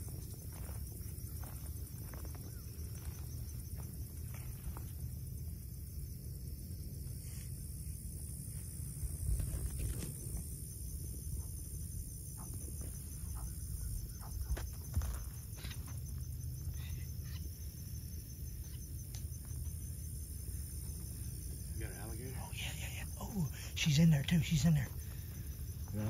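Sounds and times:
footsteps on dry ground: 0.0 - 5.0, 14.4 - 16.0
high insect chorus: 0.0 - 26.0
wind rumbling on microphone: 8.7 - 15.2.

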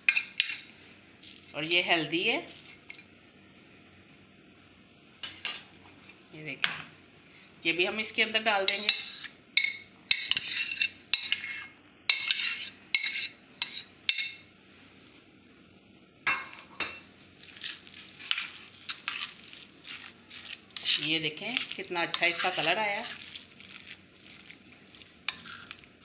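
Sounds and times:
utensil scraping glass bowl: 8.7 - 9.3, 10.2 - 13.8, 17.4 - 25.9.

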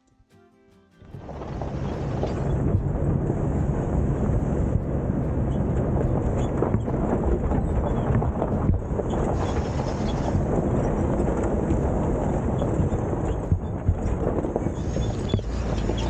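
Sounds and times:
tyre and road noise: 1.0 - 16.0
wind rush on microphone: 1.1 - 16.0
vehicle knocks on bumpy track: 1.2 - 16.0.

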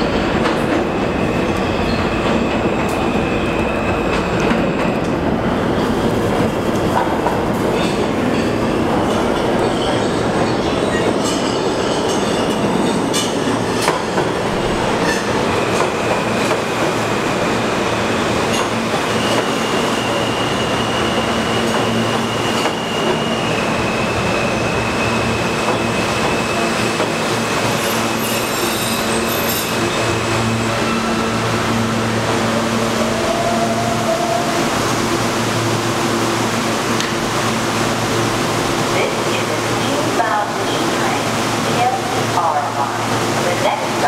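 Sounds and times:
high-pitched train wheel squeal: 18.1 - 34.7.

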